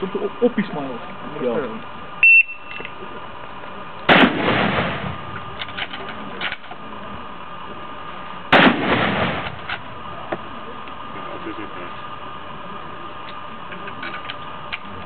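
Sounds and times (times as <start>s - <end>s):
rifle shots with echo: 4.1s - 5.3s, 8.5s - 9.6s.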